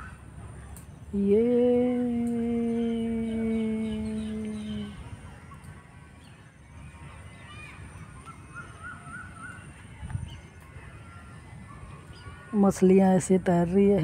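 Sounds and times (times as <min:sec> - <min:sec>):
birds calling faintly: 0:00.0 - 0:14.0
steady held hum: 0:00.0 - 0:14.0.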